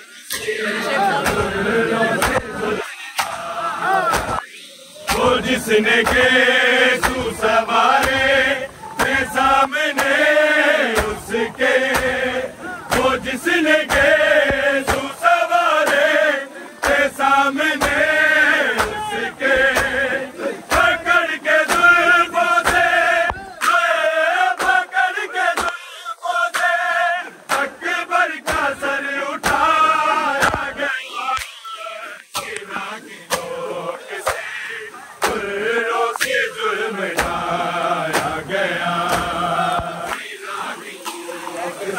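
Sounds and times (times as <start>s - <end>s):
men chanting: 0.0s - 41.9s
hands slapping chests: 1.2s - 1.6s, 2.2s - 2.5s, 3.1s - 6.4s, 7.0s - 10.3s, 10.9s - 12.3s, 12.9s - 15.2s, 15.8s - 16.2s, 16.8s - 17.1s, 18.8s - 20.0s, 21.6s - 22.0s, 22.6s - 23.8s, 24.6s - 24.9s, 26.5s - 26.8s, 27.5s - 27.8s, 28.4s - 28.7s, 29.4s - 29.7s, 30.4s - 31.6s, 32.2s - 33.5s, 34.2s - 34.5s, 35.2s - 35.5s, 37.2s - 37.4s, 38.1s - 38.4s, 39.0s - 40.3s.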